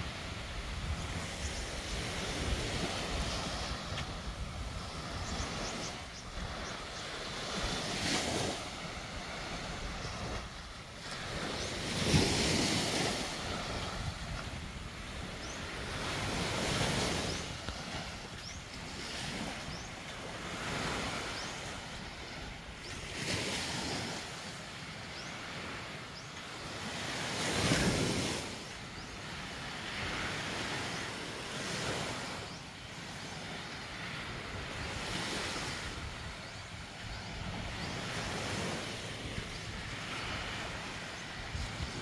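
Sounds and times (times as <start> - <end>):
wind on microphone: 0.0 - 24.3, 33.3 - 42.0
small waves breaking on beach: 0.0 - 42.0.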